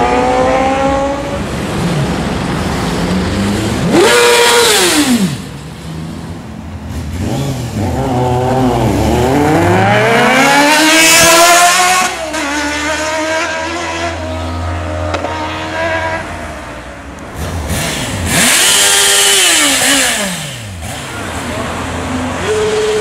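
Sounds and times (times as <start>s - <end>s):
motorcycle engine accelerating: 0.0s - 16.3s, 17.3s - 23.0s
engine revving sharply: 7.1s - 16.3s, 17.3s - 23.0s.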